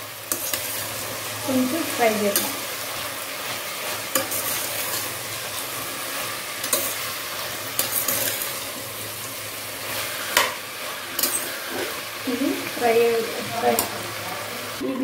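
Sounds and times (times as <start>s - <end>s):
vegetables sizzling in oil: 0.0s - 15.0s
spoon scraping a pot: 2.3s - 8.9s, 9.8s - 12.2s.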